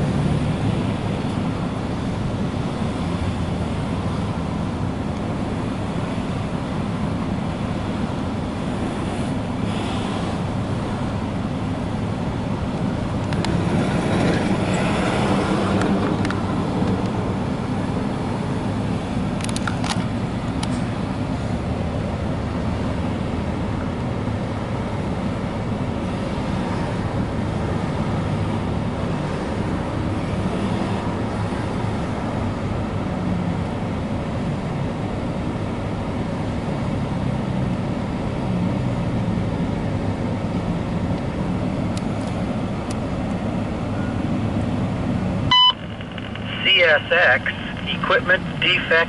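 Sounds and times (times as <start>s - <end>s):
short radio beep: 45.5s - 49.0s.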